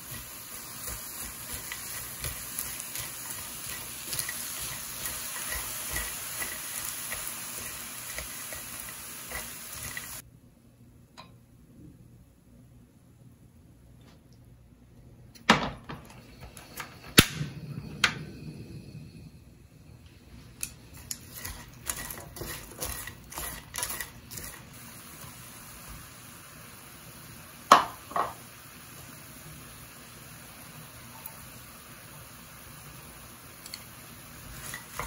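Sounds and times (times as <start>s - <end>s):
utensil stirring in metal pan: 0.0s - 10.2s, 20.6s - 25.4s, 34.4s - 35.0s.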